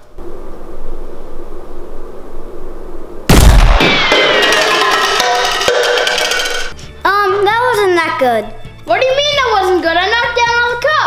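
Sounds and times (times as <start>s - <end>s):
steady low hum: 0.0s - 7.0s
toy blaster bang: 3.3s - 6.7s
ringing tones falling in pitch: 3.9s - 6.7s.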